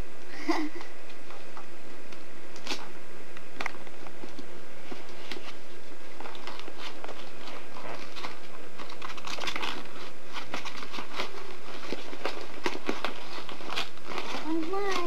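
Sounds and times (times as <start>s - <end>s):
low background hum: 0.0s - 15.0s
gift box wrapping rustling: 4.1s - 15.0s.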